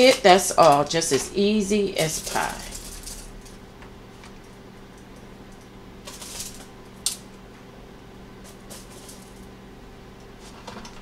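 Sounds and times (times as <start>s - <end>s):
aluminium foil crinkling: 0.0s - 3.6s, 6.0s - 7.3s, 8.4s - 9.5s.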